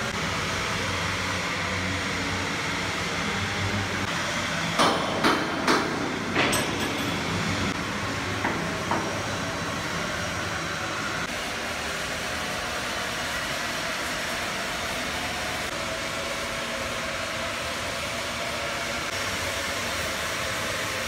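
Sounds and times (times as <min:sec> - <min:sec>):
industrial machinery hum: 0:00.0 - 0:21.0
hammer striking steel: 0:04.7 - 0:09.3.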